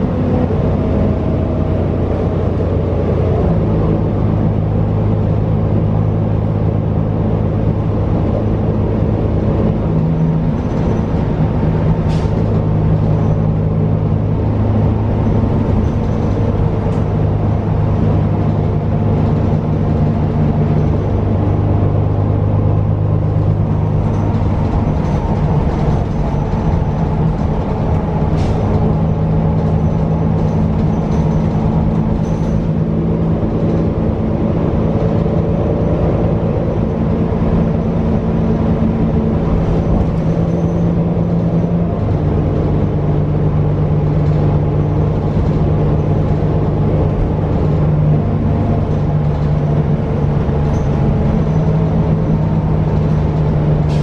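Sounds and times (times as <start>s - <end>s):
bus diesel engine drone: 0.0s - 54.0s.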